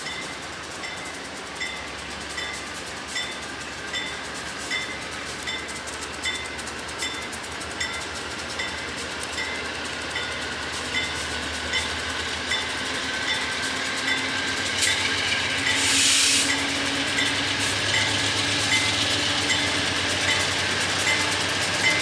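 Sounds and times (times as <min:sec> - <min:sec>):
locomotive bell ringing: 0:00.0 - 0:22.0
train engine hum: 0:00.0 - 0:22.0
air hiss: 0:15.7 - 0:16.6.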